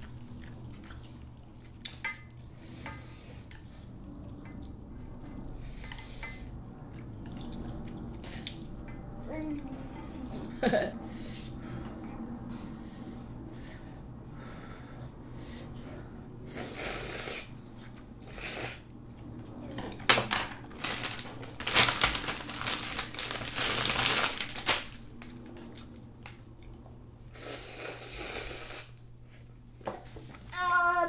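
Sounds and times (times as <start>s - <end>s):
plastic wrapper crinkling: 20.7s - 25.2s
noodles being slurped: 27.3s - 29.0s.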